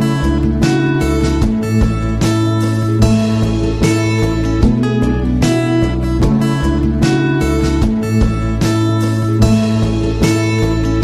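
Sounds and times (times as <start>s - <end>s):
steady low bass: 0.0s - 11.0s
strummed acoustic guitar: 0.0s - 11.0s.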